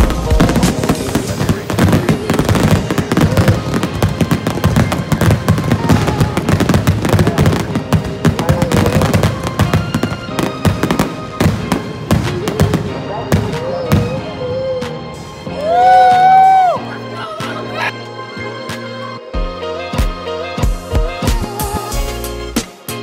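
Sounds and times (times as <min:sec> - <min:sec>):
fireworks bursting: 0:00.0 - 0:15.4
music playing: 0:00.0 - 0:23.0.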